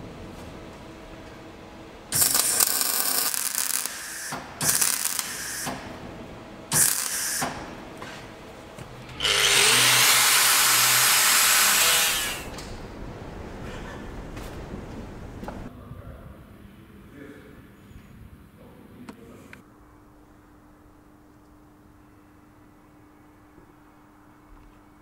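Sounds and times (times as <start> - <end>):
welder arcing crackle: 2.1 - 6.0, 6.7 - 7.8, 9.1 - 12.7.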